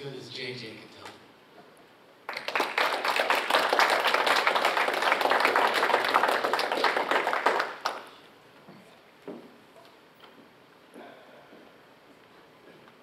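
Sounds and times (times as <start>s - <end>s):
audience applauding: 2.3s - 8.2s.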